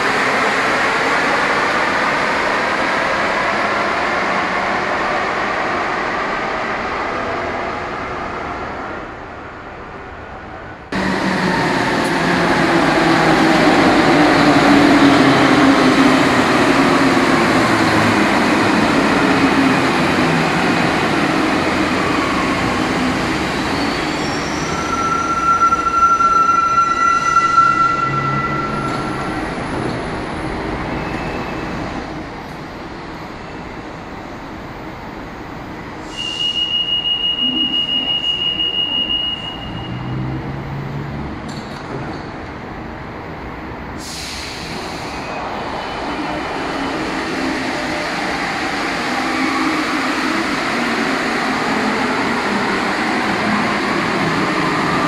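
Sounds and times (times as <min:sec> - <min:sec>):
metro train whine: 0:00.0 - 0:55.0
high steady brake squeal: 0:22.0 - 0:29.5, 0:31.0 - 0:31.8, 0:36.0 - 0:40.4.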